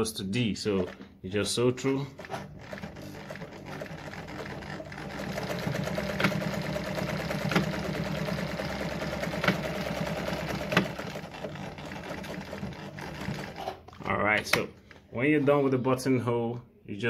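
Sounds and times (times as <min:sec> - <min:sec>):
sewing machine running: 0:00.7 - 0:01.0, 0:01.8 - 0:14.1.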